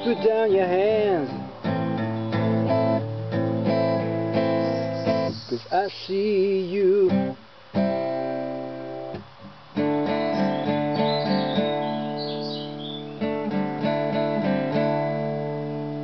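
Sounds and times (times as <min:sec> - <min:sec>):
bird chirping faintly: 0:00.0 - 0:07.1, 0:09.8 - 0:13.6
acoustic guitar strumming chords: 0:00.0 - 0:16.0.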